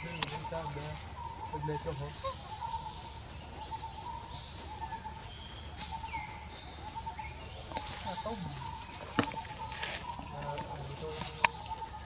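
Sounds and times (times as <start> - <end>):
bird chirps: 0.0 - 12.0.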